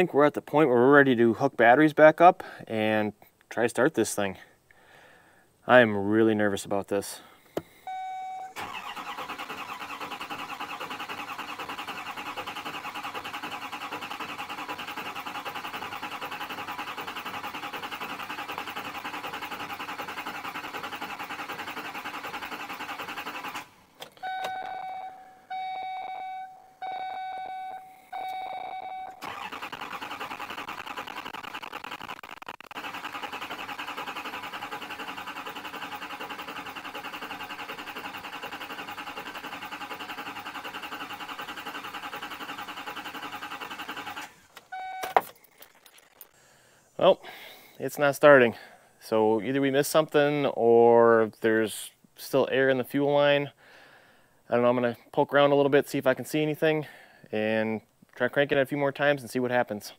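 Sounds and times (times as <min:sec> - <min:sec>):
diesel engine cranking: 0:08.4 - 0:25.1, 0:29.1 - 0:48.6
chime beeping: 0:24.2 - 0:29.2.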